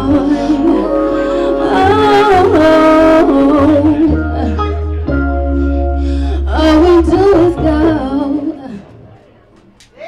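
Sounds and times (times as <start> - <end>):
woman singing: 0.0 - 4.9, 6.3 - 9.0
music with steady bass line: 0.0 - 9.2.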